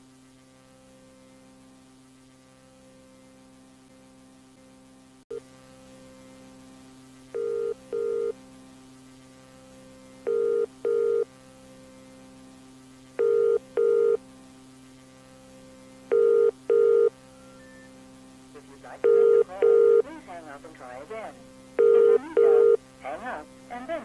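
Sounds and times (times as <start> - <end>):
electrical hum: 0.0 - 24.0
telephone ringing tone: 7.4 - 8.4, 10.3 - 11.3, 13.2 - 14.2, 16.1 - 17.9, 19.0 - 20.0, 21.8 - 22.8.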